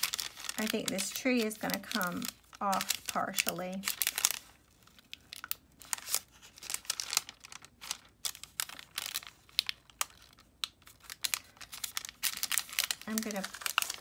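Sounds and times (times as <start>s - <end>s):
tracing paper crinkling: 0.0s - 14.0s.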